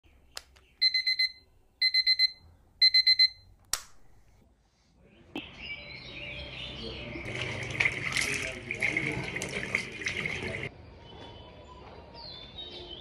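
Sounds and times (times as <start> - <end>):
digital alarm beeping: 0.8 - 3.5
sharp click: 3.6 - 4.1.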